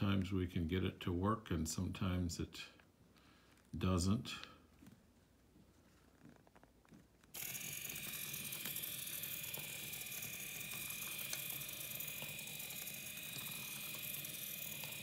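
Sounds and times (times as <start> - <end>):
small motor whine with gear buzz: 7.4 - 15.0.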